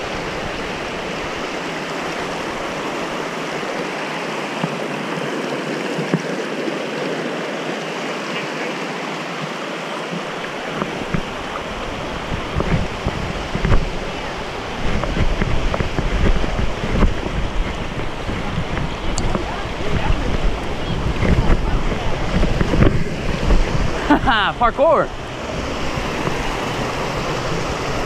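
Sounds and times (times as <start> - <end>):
wind buffeting microphone: 0.0 - 3.8, 10.2 - 28.0
creek rushing over rocks: 0.0 - 28.0.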